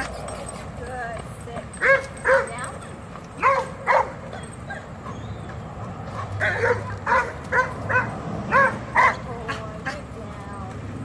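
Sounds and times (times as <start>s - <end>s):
dog barking: 1.8s - 2.6s, 3.4s - 4.9s, 6.2s - 9.2s.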